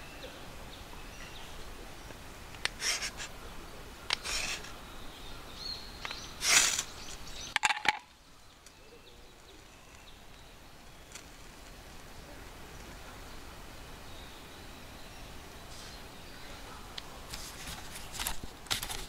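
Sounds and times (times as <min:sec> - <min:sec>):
faint bird calls: 0:00.0 - 0:17.3
sharp clicks: 0:04.1 - 0:04.7.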